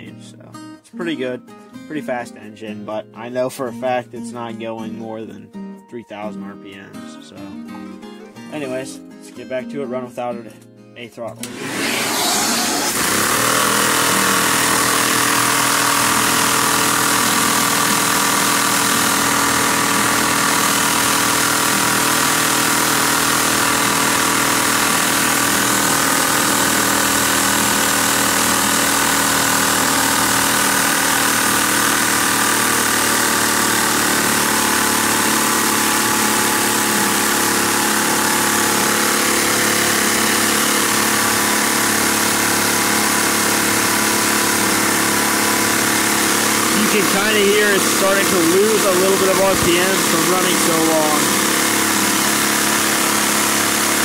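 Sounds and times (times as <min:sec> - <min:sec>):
toy vacuum engine running fast: 0:11.4 - 0:54.0.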